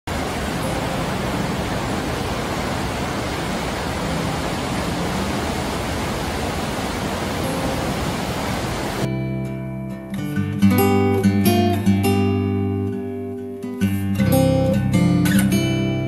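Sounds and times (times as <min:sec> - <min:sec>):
water rushing over rocks: 0:00.1 - 0:09.1.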